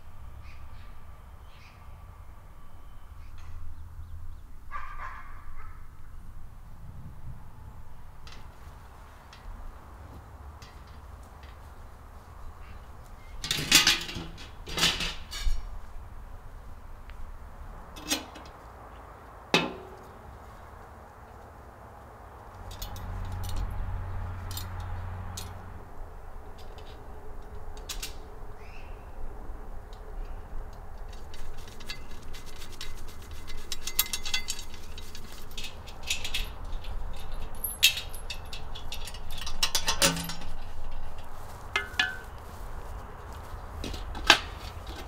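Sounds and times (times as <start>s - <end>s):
metal chain and parts clinking: 22.6s - 25.6s, 31.0s - 42.3s.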